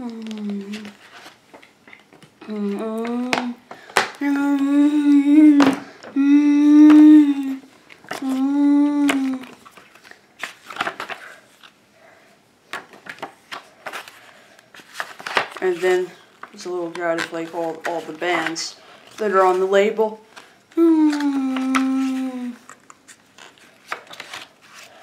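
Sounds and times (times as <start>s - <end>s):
paper and cardboard rustling: 0.0s - 4.1s, 9.1s - 11.8s, 12.7s - 25.0s
man humming: 4.2s - 9.4s.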